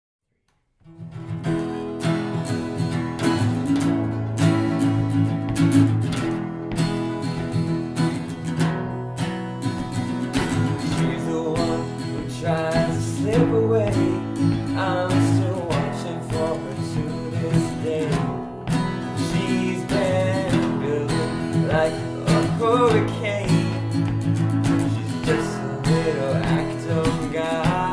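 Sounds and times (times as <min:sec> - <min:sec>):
acoustic guitars strumming: 0:00.8 - 0:27.9
man singing: 0:10.4 - 0:27.9.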